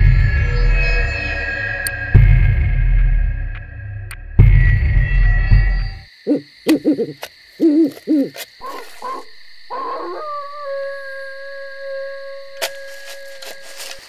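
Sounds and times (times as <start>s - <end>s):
owl hooting: 6.2s - 13.7s.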